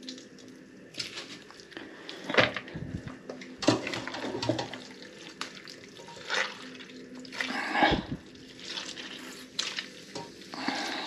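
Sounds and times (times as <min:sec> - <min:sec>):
wet squelches: 0:03.8 - 0:11.0.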